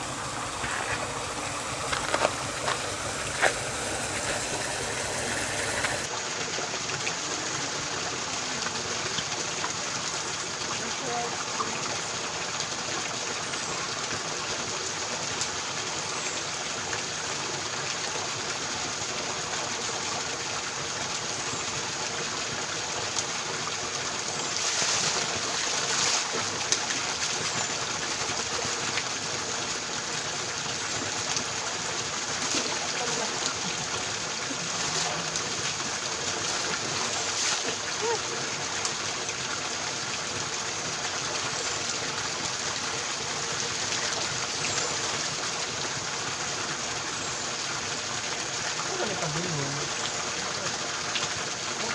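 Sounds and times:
hands splashing in falling water: 0.0 - 6.1, 24.4 - 27.5
water pouring onto rocks: 0.0 - 13.2, 16.4 - 51.9.

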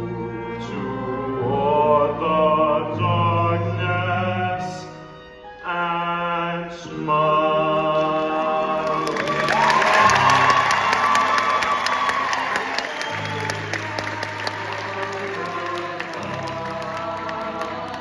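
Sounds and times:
musical accompaniment: 0.0 - 18.0
audience applause and cheering: 8.5 - 18.0.

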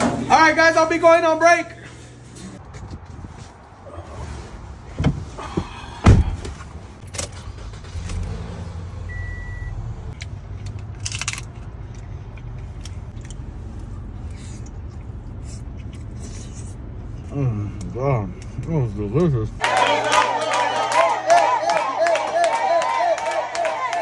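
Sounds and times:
car door shutting: 4.9 - 6.6
car engine running: 7.0 - 19.6
car chime beep: 9.1 - 9.8.

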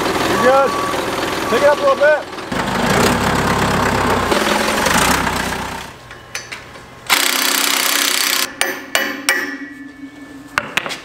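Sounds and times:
forklift engine running: 0.0 - 8.5
impact wrench hammering: 7.1 - 9.9.

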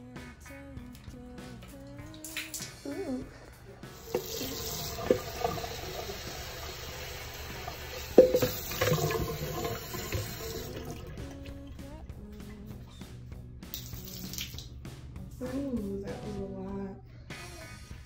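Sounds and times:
background music: 0.0 - 18.0
tap water filling bucket: 3.9 - 11.9, 13.7 - 14.7.

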